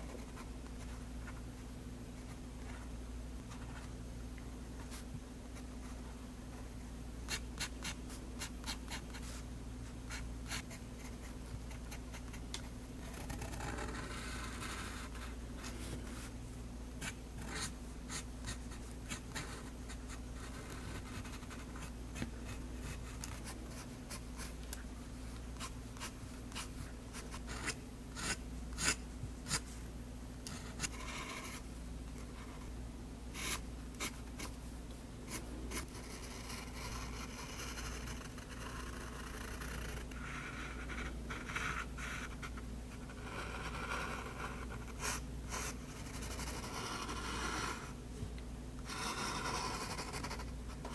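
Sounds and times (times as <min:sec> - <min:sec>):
pen nib scratching paper: 0:13.0 - 0:15.3, 0:25.6 - 0:29.7, 0:35.3 - 0:47.9, 0:48.8 - 0:50.5.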